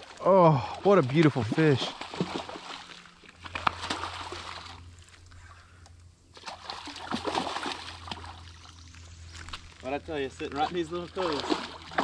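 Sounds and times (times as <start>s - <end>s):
fish splashing in water: 0.8s - 4.9s, 6.3s - 8.8s, 10.6s - 12.0s.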